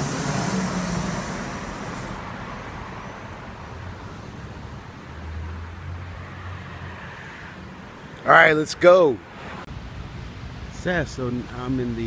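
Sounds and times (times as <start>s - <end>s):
garbage truck engine running: 0.0s - 2.2s
city street traffic: 0.0s - 12.0s.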